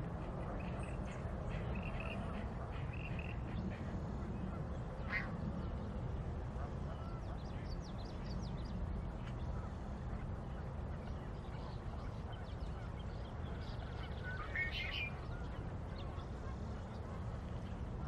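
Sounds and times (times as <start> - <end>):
faint bird calls: 5.0 - 5.4.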